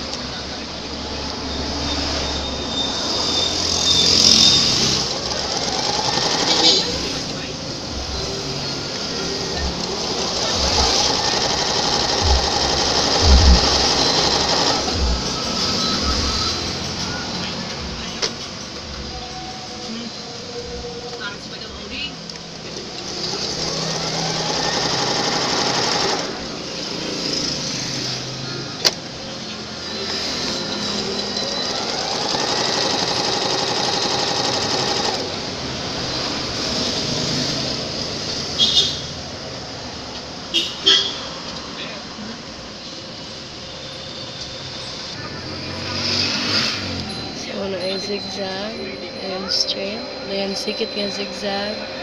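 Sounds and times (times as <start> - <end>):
sewing machine running: 3.5 - 7.4, 8.8 - 15.7, 22.8 - 27.0, 30.1 - 35.5.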